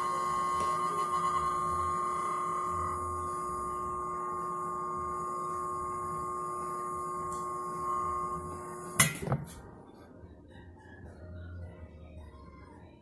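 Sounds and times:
steamer hissing and humming: 0.0 - 9.2.

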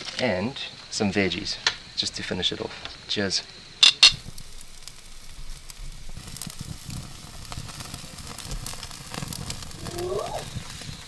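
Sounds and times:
fire crackling and sizzling: 0.0 - 11.0
brief wavering call: 9.8 - 10.5.

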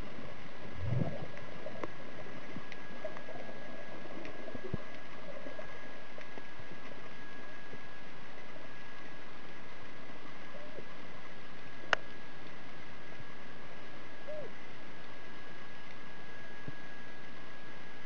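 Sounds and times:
low gurgle: 0.0 - 18.0
faint clicks: 1.3 - 13.4, 15.0 - 16.0.

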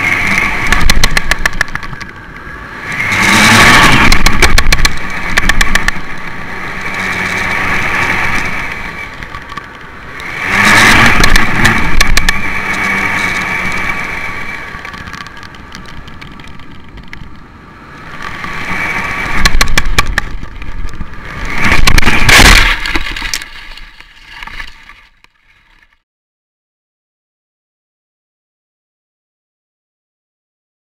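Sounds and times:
clicks and rattles: 0.3 - 2.2, 4.0 - 6.1, 10.9 - 13.0, 19.3 - 26.0
wind noise on microphone: 2.7 - 9.4, 10.3 - 17.4, 18.0 - 23.6.

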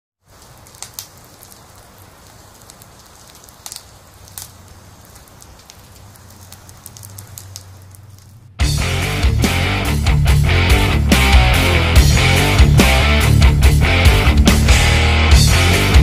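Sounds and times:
soft crackling with clicks: 0.2 - 8.5.

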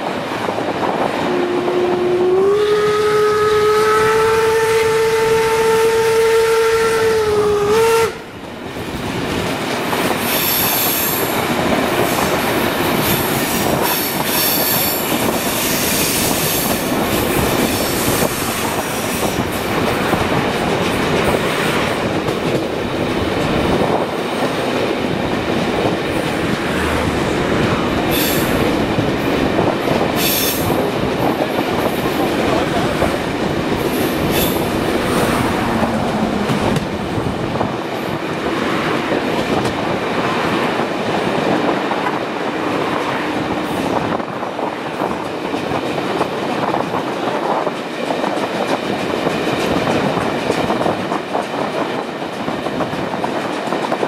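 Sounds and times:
train wheels rolling on track: 0.0 - 54.0
steam locomotive whistle: 1.3 - 8.3.

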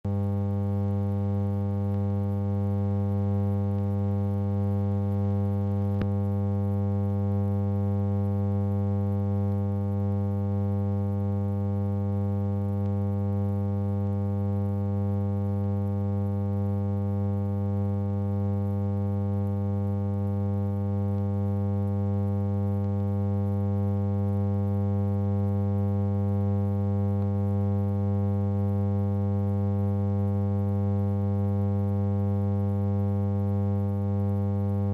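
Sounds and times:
faint click: 6.0 - 6.2.

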